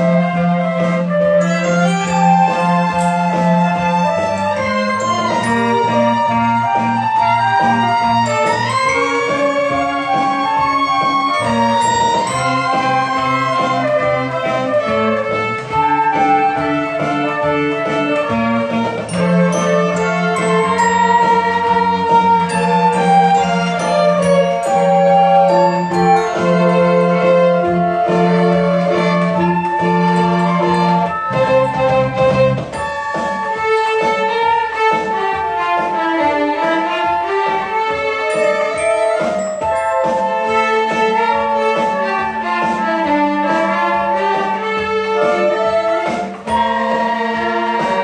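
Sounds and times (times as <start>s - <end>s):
violins flutes and clarinet playing: 0.0s - 48.0s.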